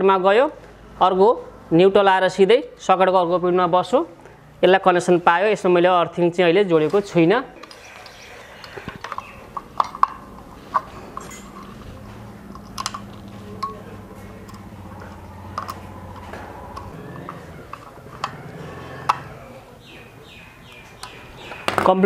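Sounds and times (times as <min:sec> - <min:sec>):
screwdriver clicks and clinks: 0:07.6 - 0:11.9, 0:12.5 - 0:13.8, 0:15.5 - 0:16.9.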